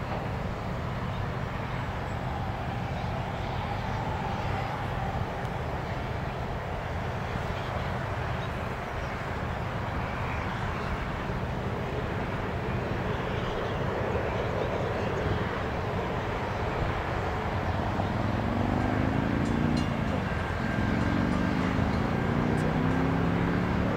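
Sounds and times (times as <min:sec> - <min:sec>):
road traffic rumble: 0:00.0 - 0:23.9
car driving past: 0:17.9 - 0:23.9.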